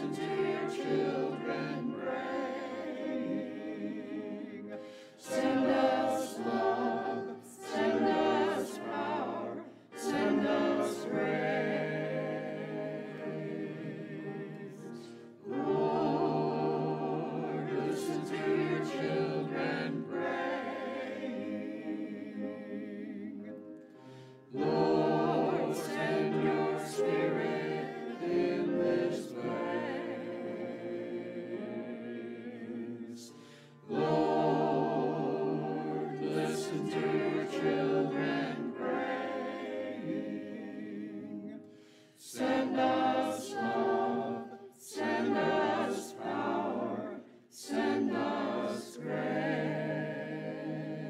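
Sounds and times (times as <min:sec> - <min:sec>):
choir singing: 0:00.0 - 0:51.0
singers breathing: 0:04.8 - 0:05.2, 0:23.9 - 0:24.5, 0:33.3 - 0:33.9, 0:41.6 - 0:42.2.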